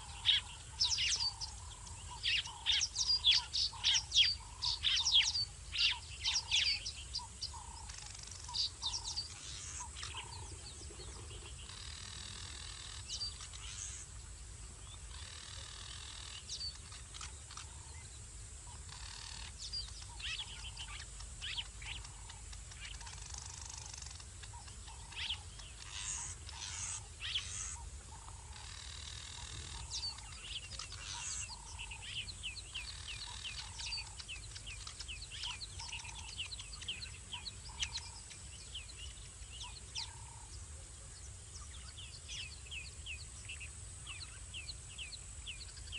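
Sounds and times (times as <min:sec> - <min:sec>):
bird trills: 0:00.0 - 0:14.1, 0:18.7 - 0:40.6
birds chirping: 0:00.0 - 0:45.9.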